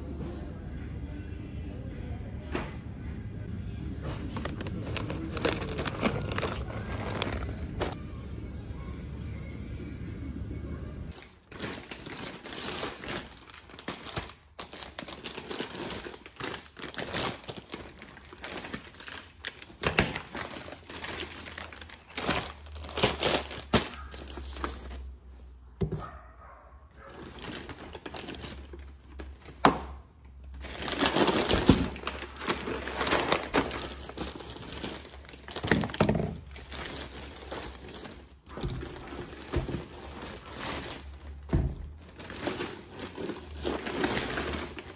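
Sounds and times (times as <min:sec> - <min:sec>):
plastic bags crinkling: 0:04.2 - 0:08.0, 0:11.1 - 0:25.2, 0:26.9 - 0:44.9.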